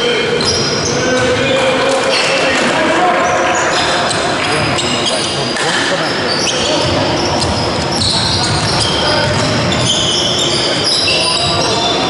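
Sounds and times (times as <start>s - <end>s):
sneakers squeaking on wooden floor: 0.3s - 2.6s, 3.2s - 12.0s
basketball bouncing: 6.7s - 10.0s.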